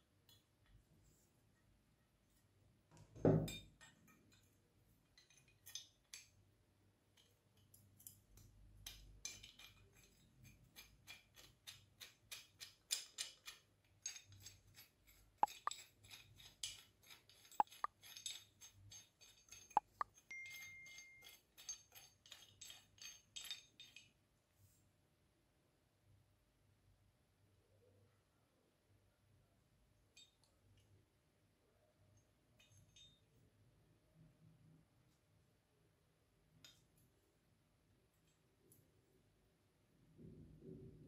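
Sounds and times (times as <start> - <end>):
sharp metallic clinks: 17.4 - 24.0.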